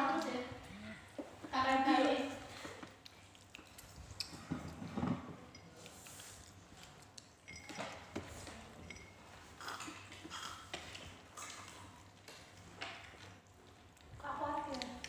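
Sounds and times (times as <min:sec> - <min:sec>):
cutlery clinking on plates: 0:07.4 - 0:10.9.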